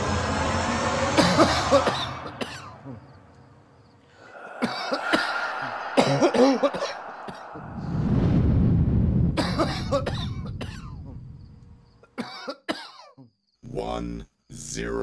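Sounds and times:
person coughing: 1.2s - 3.0s, 4.3s - 7.6s, 12.2s - 13.3s.

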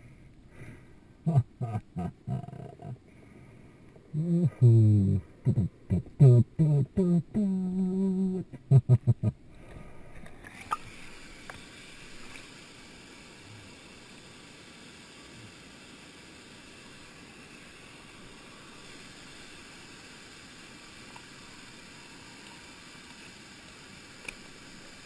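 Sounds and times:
stream water flowing: 9.4s - 25.0s
faint clicks: 24.2s - 24.5s.

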